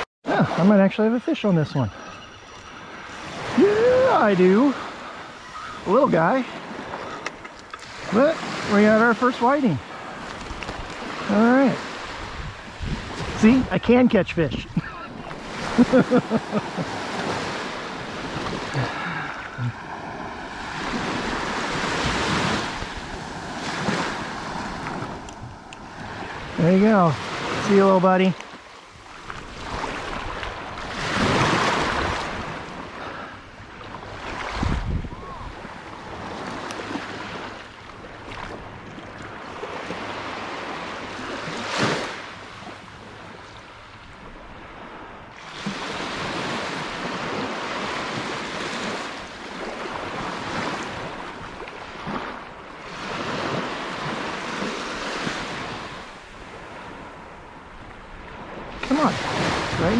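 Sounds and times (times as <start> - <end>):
small waves washing onto beach: 0.0 - 59.9
wind buffeting microphone: 12.0 - 26.6, 33.6 - 37.5.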